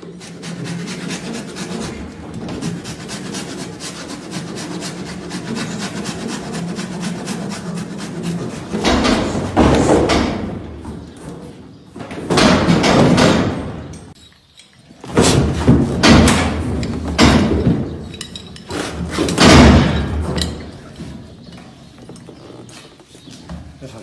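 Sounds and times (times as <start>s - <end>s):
metal cattle crush banging: 8.0s - 14.2s, 15.0s - 21.3s.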